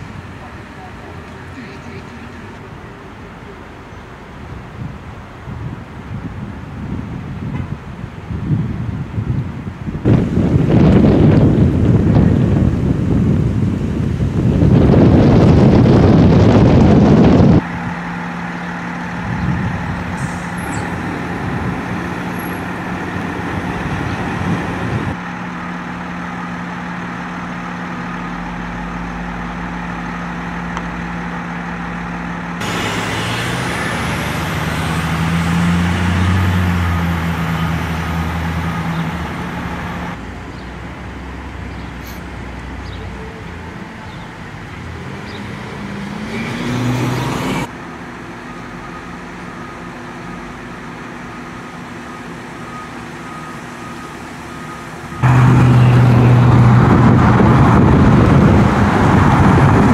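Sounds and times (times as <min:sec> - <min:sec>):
vehicle engines idling: 0:00.0 - 0:06.2, 0:09.0 - 0:59.9
wind buffeting microphone: 0:04.5 - 0:17.9, 0:19.0 - 0:25.2, 0:55.2 - 0:59.9.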